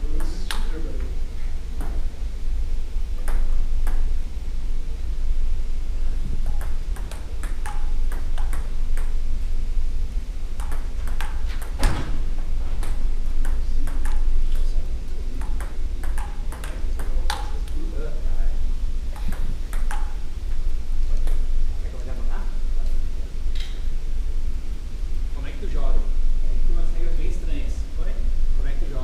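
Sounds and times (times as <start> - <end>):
steady low hum: 0.0 - 29.0
table tennis ball clicking: 6.4 - 9.2, 10.6 - 11.8, 12.8 - 14.7, 15.4 - 17.8, 19.1 - 20.2.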